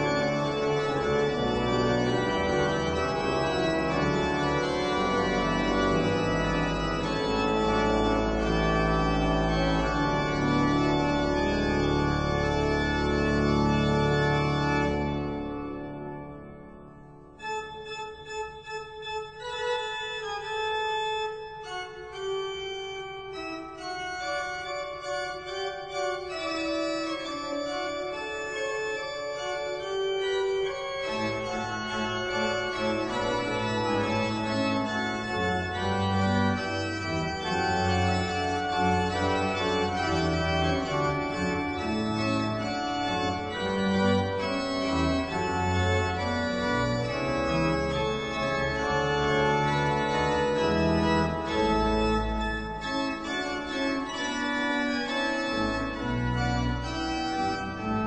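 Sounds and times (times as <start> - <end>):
organ chords: 0.0 - 58.0.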